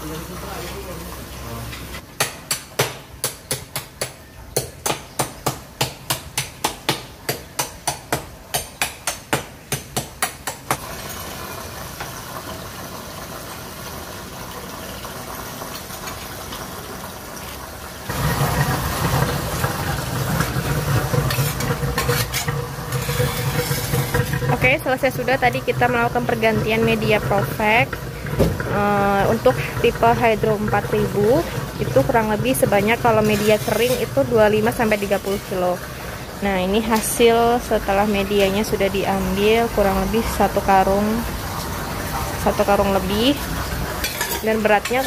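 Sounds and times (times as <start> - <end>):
hammer striking: 2.2 - 10.8.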